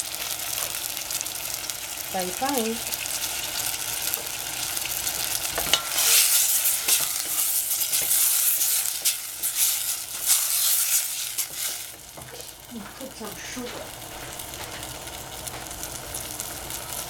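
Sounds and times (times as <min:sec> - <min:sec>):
tomatoes sizzling in oil: 0:00.0 - 0:17.0
wooden spatula stirring: 0:03.2 - 0:13.1.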